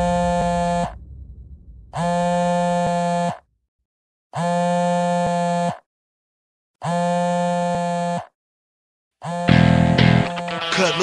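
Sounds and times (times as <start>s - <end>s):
electronic buzzer blasts: 4.4s - 5.8s, 9.2s - 11.0s.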